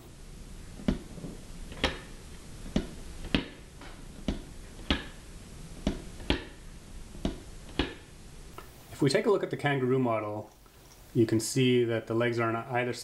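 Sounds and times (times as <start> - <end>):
plastic toy feet tapping: 5.8 - 6.6.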